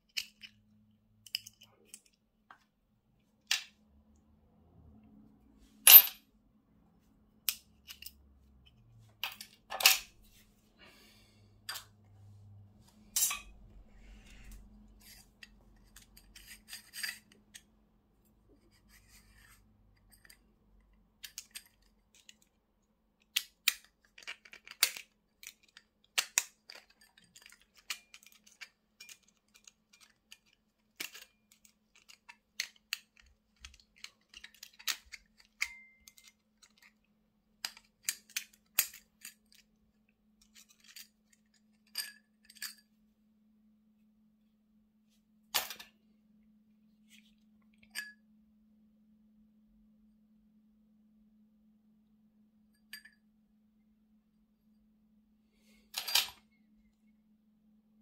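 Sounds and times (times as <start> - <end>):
metal parts clicking and scraping: 5.8 - 6.2, 7.4 - 10.2, 13.1 - 17.7, 21.2 - 22.5, 23.3 - 39.8, 40.4 - 42.9, 55.9 - 56.4.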